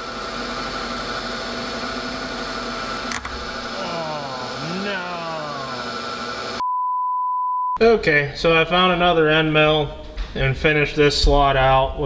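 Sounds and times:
machine whine: 0.0s - 6.6s
milling machine hum: 0.0s - 6.6s.

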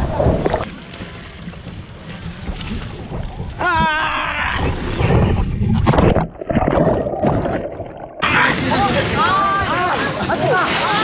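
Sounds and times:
water rushing down slide: 8.2s - 11.0s.

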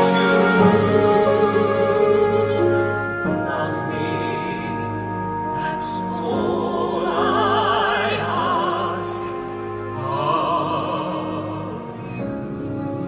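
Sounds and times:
operatic singing: 0.0s - 13.0s
orchestral accompaniment: 0.0s - 13.0s.

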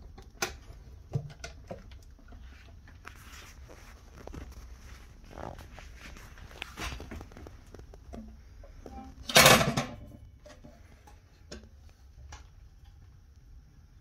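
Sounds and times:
metal lid clanking: 8.9s - 10.1s.

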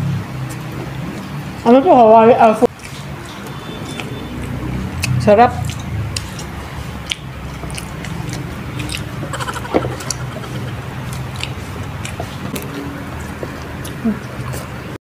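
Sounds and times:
people chewing pizza: 2.6s - 15.0s
mouth clicks and smacks: 2.7s - 14.7s
low background hum: 5.0s - 14.4s
brief voiced sound: 9.4s - 10.9s.

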